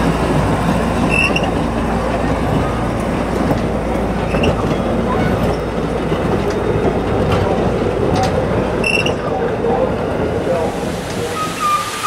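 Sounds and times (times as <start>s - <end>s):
steel wheels rumbling on rail: 0.0s - 12.0s
train wheel squeal: 1.0s - 1.6s, 4.2s - 5.6s, 8.8s - 9.4s, 11.2s - 12.0s.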